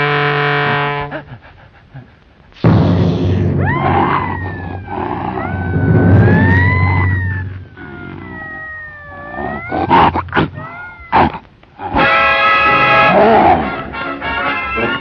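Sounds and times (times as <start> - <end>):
sharp hits: 2.6 - 8.6
sliding wailing tones: 2.6 - 13.2.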